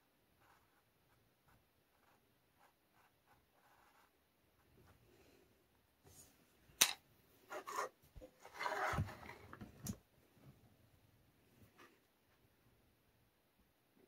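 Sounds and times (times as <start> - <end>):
board scraping on tabletop: 7.5 - 9.6.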